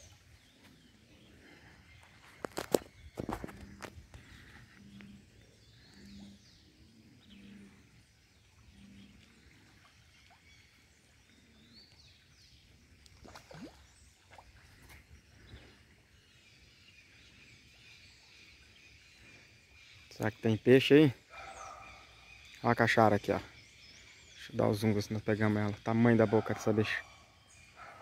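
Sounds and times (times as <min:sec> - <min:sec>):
fish popping and splashing: 0:13.2 - 0:13.8.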